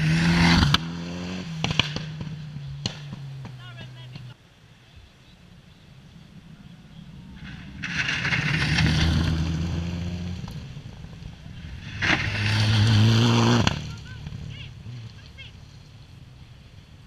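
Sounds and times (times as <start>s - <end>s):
rally car engine passing: 0.0s - 4.4s, 5.4s - 17.0s
tyres on loose gravel: 5.4s - 17.0s.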